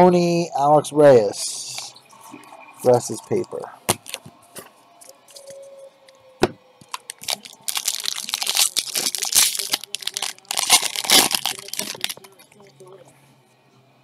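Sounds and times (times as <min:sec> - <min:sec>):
foil wrapper tearing and crinkling: 0:06.8 - 0:12.4.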